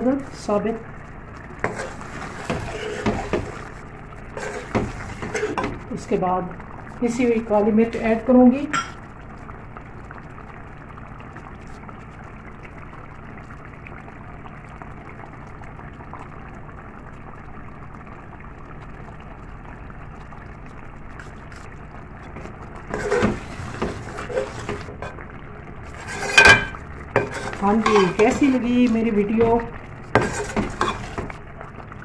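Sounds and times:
food simmering in oil: 0:00.0 - 0:32.0
metal spoon scraping a pot: 0:01.6 - 0:03.4, 0:04.4 - 0:05.7, 0:22.9 - 0:24.9, 0:25.9 - 0:28.6, 0:30.2 - 0:31.3.

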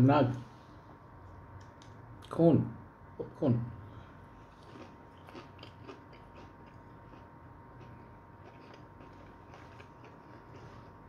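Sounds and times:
faint crunchy chewing: 0:04.4 - 0:11.0.

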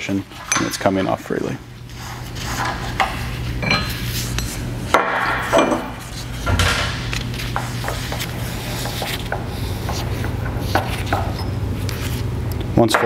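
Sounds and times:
low workshop hum: 0:00.0 - 0:13.0
steel parts clinking and scraping: 0:03.6 - 0:04.6.

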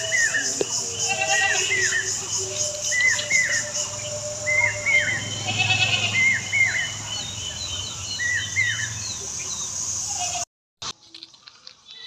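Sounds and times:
goat rumbling bleat: 0:05.4 - 0:06.4.

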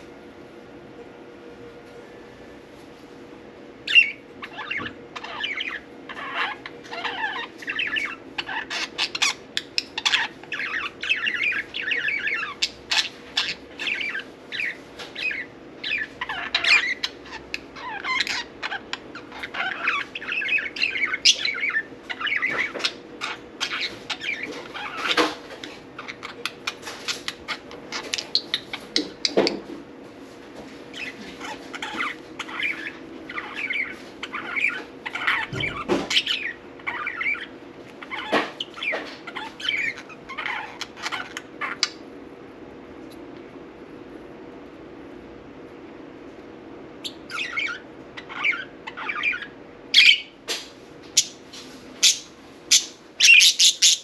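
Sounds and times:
faint steady hum: 0:00.0 - 0:54.0
budgerigars chattering: 0:03.9 - 0:25.4, 0:30.9 - 0:42.0, 0:47.0 - 0:50.4, 0:52.0 - 0:54.0.

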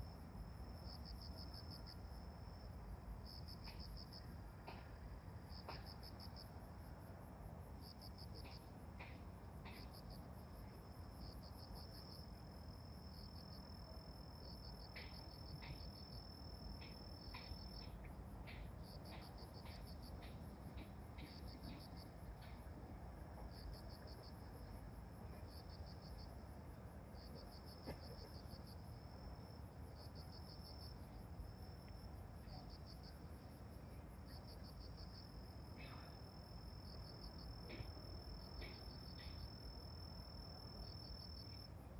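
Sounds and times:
steady pulsing insect trill: 0:00.0 - 0:41.9.

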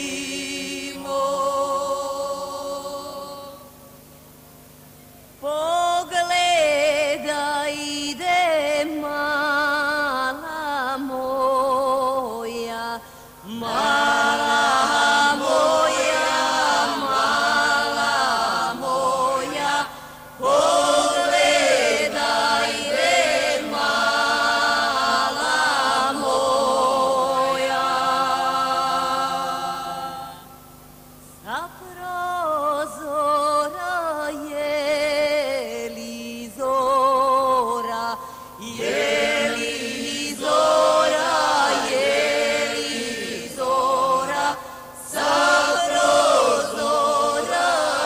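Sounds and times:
woman singing folk melody: 0:05.4 - 0:13.7, 0:31.4 - 0:38.8.

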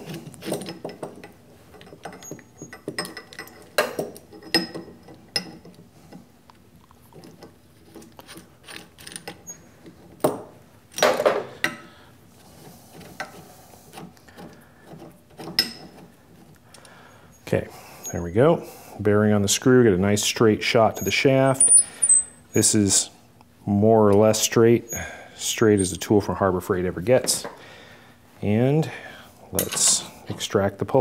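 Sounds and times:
metallic clicks and scrapes: 0:07.1 - 0:10.0.

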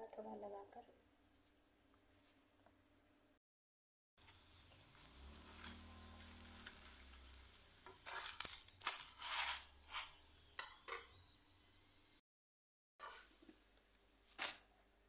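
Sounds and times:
flatbread sizzling on a griddle: 0:04.2 - 0:12.2
steel spoon scraping: 0:04.3 - 0:11.2.

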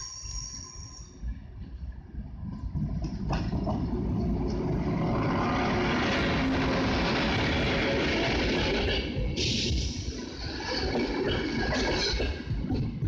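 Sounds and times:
rush of train wheels on rails: 0:02.6 - 0:13.0.

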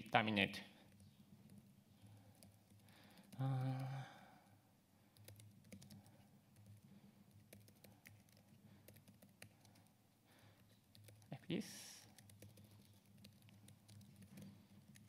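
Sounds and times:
typing on keyboard: 0:00.9 - 0:04.2, 0:05.1 - 0:10.0, 0:10.8 - 0:11.3, 0:12.0 - 0:15.0.

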